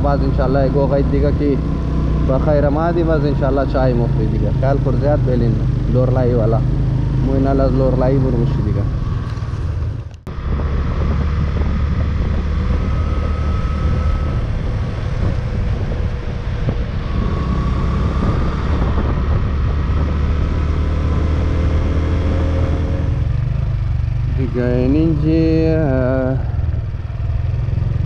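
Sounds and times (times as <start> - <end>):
motorcycle engine running: 0.0 - 28.0
rushing wind noise: 6.6 - 28.0.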